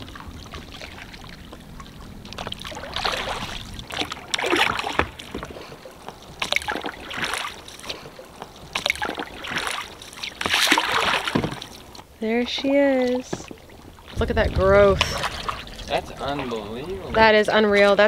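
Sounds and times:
oars splashing water: 0.0s - 18.0s.

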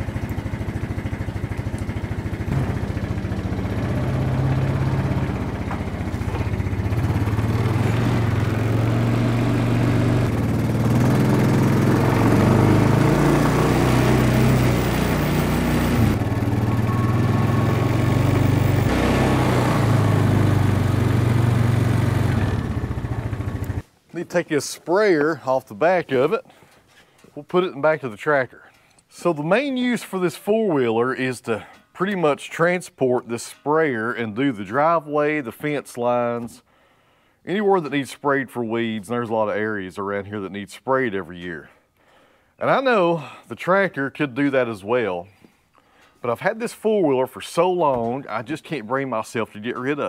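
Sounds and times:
atv engine revving: 0.0s - 23.8s.

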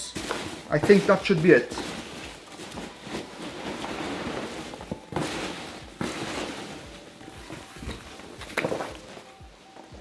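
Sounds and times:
rustling through packing material: 0.0s - 10.0s.

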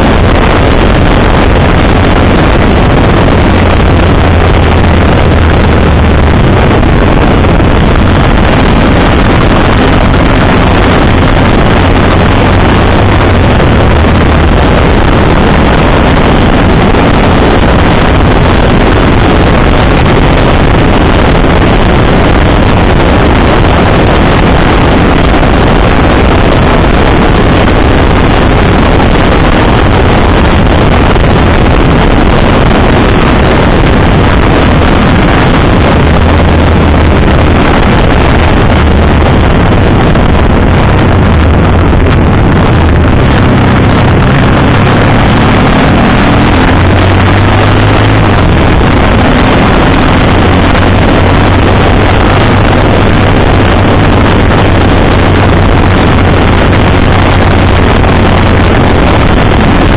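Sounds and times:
motorcycle engine hum: 0.0s - 59.9s
wind buffeting microphone: 0.0s - 59.9s.

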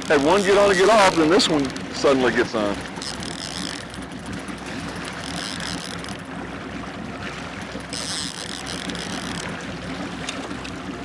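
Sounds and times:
fishing reel ratcheting: 0.0s - 2.1s, 2.9s - 6.2s, 7.8s - 9.6s
boat engine droning: 0.0s - 11.0s.

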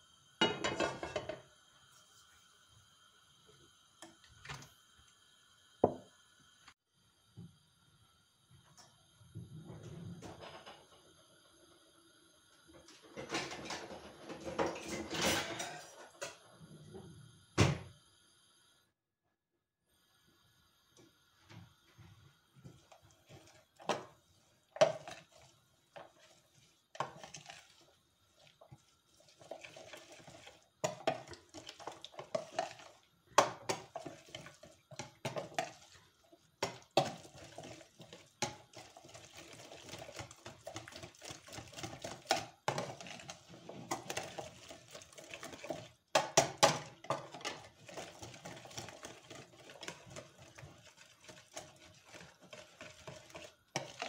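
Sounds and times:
utensils and dishes clinking: 13.1s - 16.4s.

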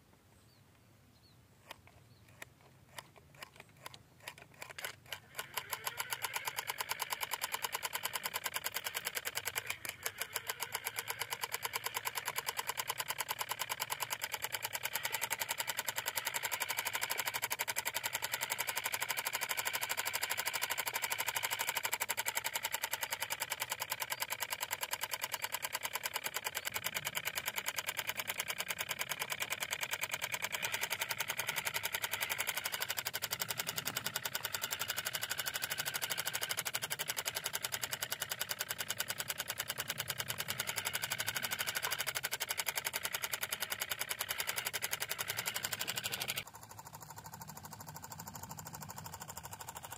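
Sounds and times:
miniature engine ticking: 1.6s - 49.9s.

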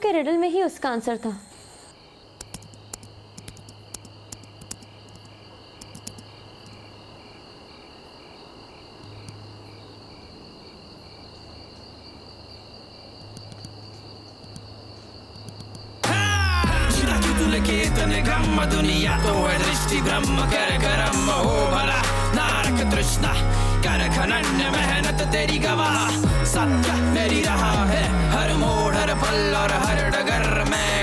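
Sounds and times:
crickets chirring: 0.0s - 31.0s
keyboard clicks: 2.4s - 6.8s, 13.2s - 13.8s, 14.4s - 14.7s, 15.4s - 15.9s
loud music: 16.0s - 31.0s
low hum: 16.4s - 31.0s.

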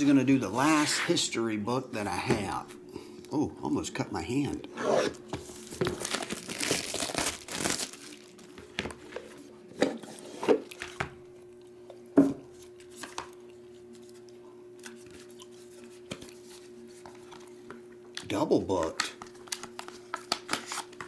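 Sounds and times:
plastic wrap tearing and crinkling: 5.5s - 8.9s, 19.4s - 21.0s.

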